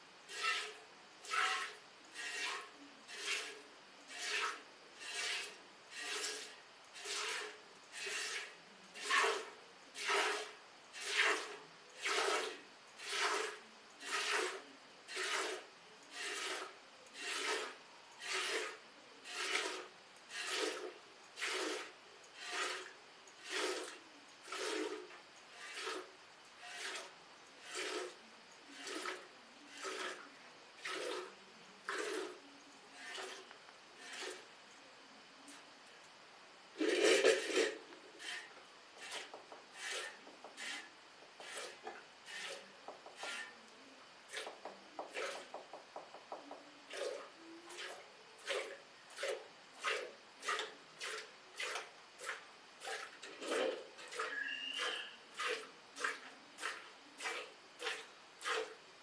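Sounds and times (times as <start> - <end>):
milk squirting into pail: 16.2 - 26.1, 28.8 - 30.2, 30.8 - 31.3, 46.9 - 58.8.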